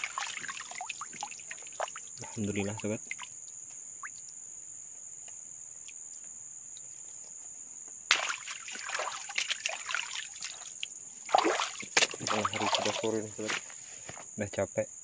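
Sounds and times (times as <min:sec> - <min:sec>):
water splashing: 0:00.0 - 0:04.2, 0:08.1 - 0:13.6
insects chirring: 0:00.0 - 0:15.0.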